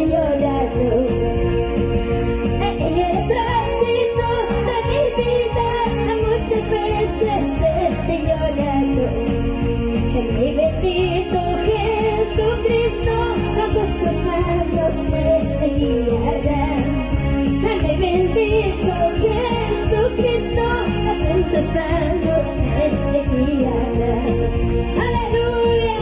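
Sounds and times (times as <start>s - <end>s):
amplified band accompaniment: 0.0s - 26.0s
woman singing into a microphone: 0.0s - 26.0s.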